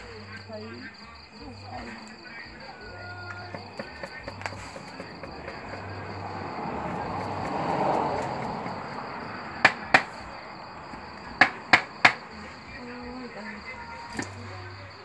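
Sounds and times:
knife chopping fish: 0:03.4 - 0:10.1.

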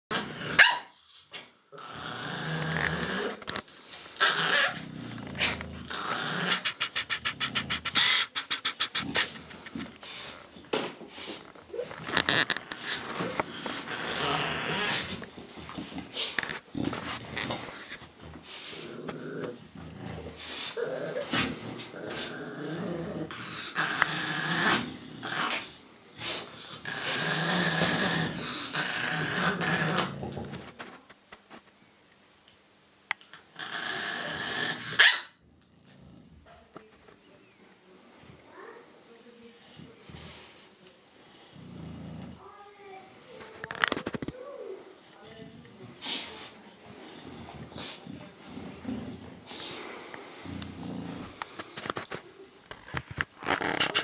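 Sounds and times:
dogs growling: 0:01.7 - 0:30.8, 0:33.4 - 0:36.7, 0:39.6 - 0:42.5, 0:44.8 - 0:52.1.

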